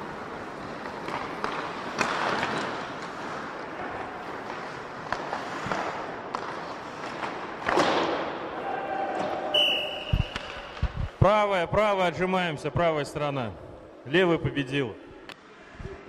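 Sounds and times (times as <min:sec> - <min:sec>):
skate blades scraping ice: 0:00.0 - 0:08.3
hockey sticks and puck clacking: 0:00.0 - 0:11.2.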